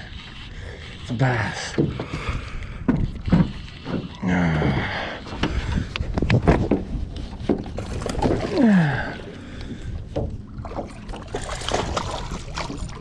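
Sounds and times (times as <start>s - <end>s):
knocks and clatter in metal boat: 1.6s - 4.2s, 5.3s - 8.6s.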